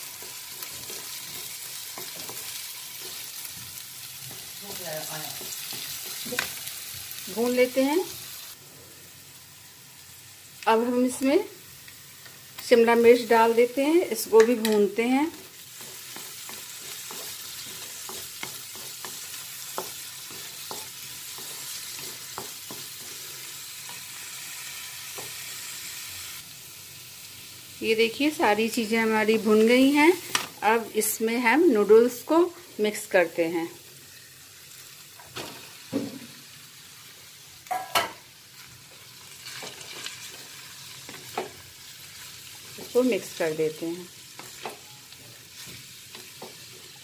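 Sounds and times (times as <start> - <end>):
vegetables sizzling in hot oil: 0.0 - 47.0
spatula scraping pan: 15.3 - 24.2.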